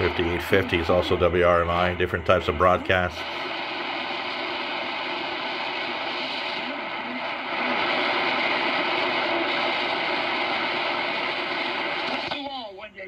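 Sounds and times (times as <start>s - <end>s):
radio static between stations: 0.0s - 12.7s.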